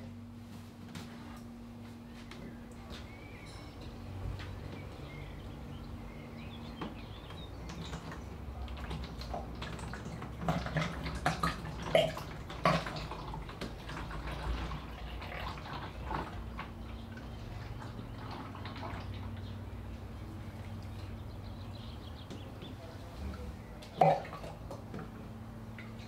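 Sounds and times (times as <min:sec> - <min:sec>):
gurgles and drips: 0:06.7 - 0:21.6, 0:22.6 - 0:26.0
oil pouring through a funnel: 0:07.7 - 0:19.5.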